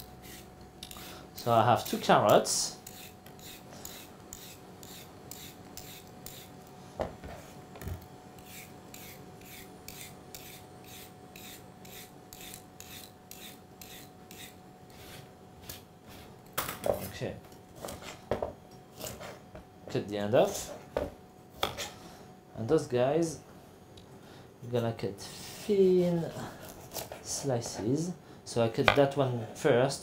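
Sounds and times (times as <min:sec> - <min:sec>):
peeler scraping carrot: 0:00.0 - 0:06.6, 0:08.4 - 0:15.8, 0:26.2 - 0:27.5.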